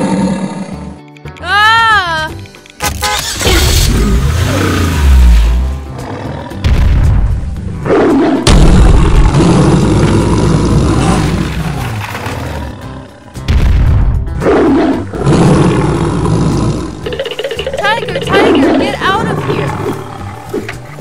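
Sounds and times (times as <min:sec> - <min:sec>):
tiger roaring: 0:00.0 - 0:01.0, 0:03.8 - 0:06.7, 0:07.8 - 0:13.5, 0:14.4 - 0:17.3, 0:18.2 - 0:21.0
background music: 0:00.0 - 0:21.0.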